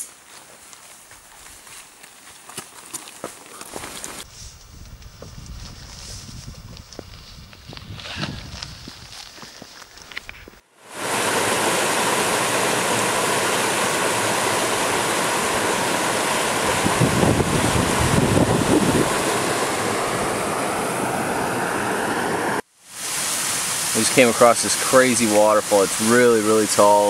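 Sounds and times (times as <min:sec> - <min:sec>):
wind buffeting microphone: 0:04.2 - 0:10.5, 0:16.5 - 0:21.8
stream rushing over rocks: 0:10.8 - 0:27.0.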